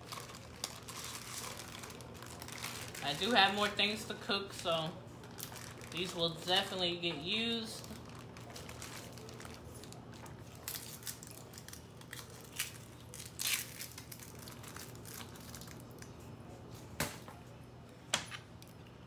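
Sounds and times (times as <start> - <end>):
onion skin rustling: 0.0 - 4.0, 7.4 - 16.3
plastic bag crinkling: 0.0 - 16.3.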